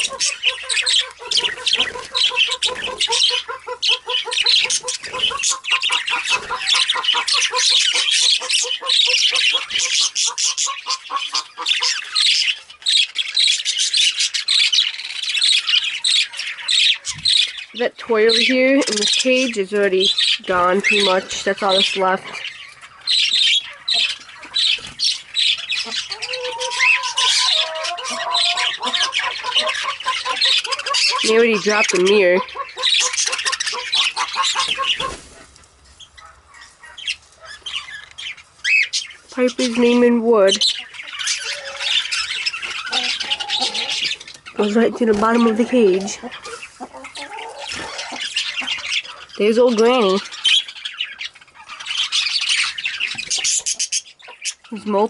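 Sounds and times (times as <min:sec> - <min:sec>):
budgerigars chattering: 0:00.0 - 0:55.0.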